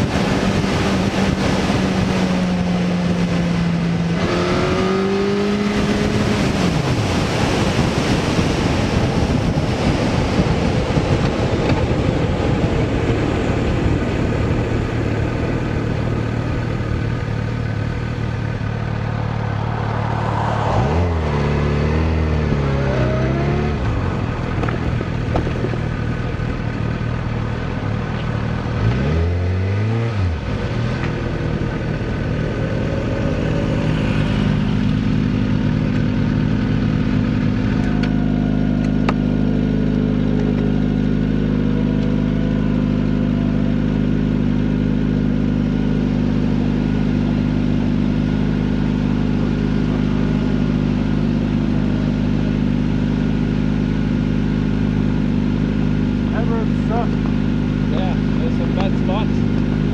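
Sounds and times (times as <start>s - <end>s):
motorcycle engine revving: 0.0s - 59.9s.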